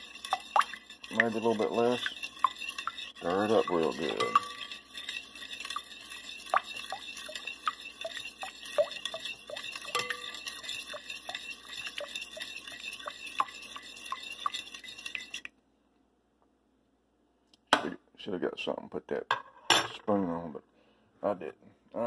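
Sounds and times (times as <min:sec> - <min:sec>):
metal spoon clinking against glass bowl: 0:00.2 - 0:15.3.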